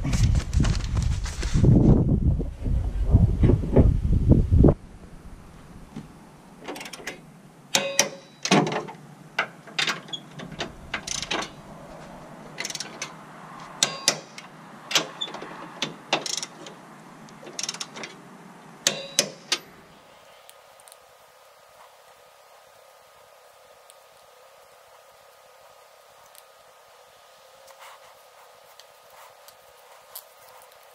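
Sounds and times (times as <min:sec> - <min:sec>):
ratchet wrench clicking: 0:11.0 - 0:11.5.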